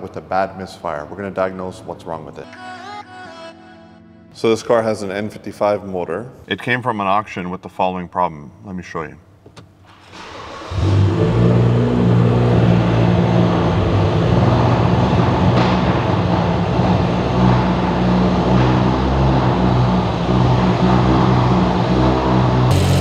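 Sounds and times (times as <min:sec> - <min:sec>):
car engine idling roughly: 0:22.7 - 0:23.0.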